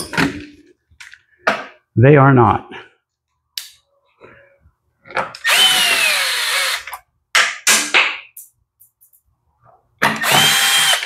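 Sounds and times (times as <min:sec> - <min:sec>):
cordless electric screwdriver whining: 0:05.4 - 0:06.9, 0:10.2 - 0:11.0.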